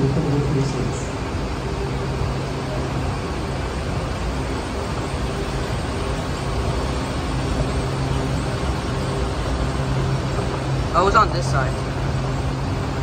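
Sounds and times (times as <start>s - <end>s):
escalator mechanical hum: 0.0s - 13.0s.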